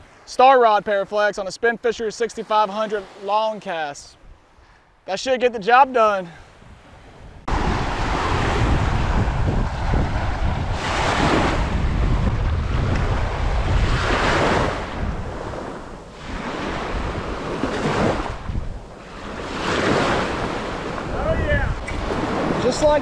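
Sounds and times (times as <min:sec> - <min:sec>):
small waves on sandy shore: 0:00.0 - 0:05.0, 0:05.7 - 0:23.0
wind rumbling on microphone: 0:06.6 - 0:23.0.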